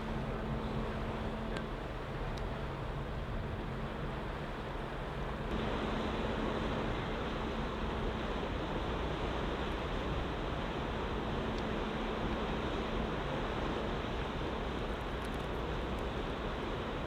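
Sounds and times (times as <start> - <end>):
rush of wind and water: 0.0 - 17.0
ship hum: 0.0 - 17.0.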